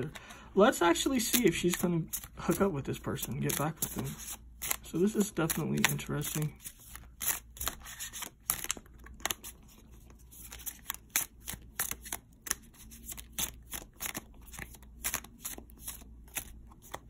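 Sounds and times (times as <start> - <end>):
cards being shuffled: 1.0 - 17.0.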